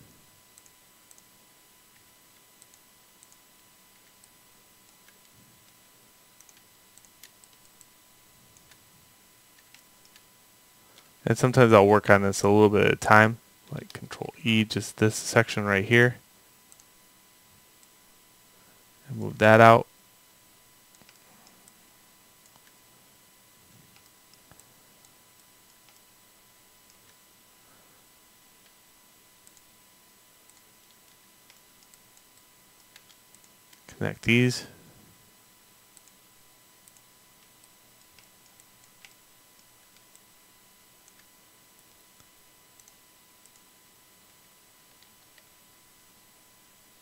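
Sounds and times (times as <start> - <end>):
mouse and keyboard clicks: 20.9 - 21.8, 30.5 - 33.8.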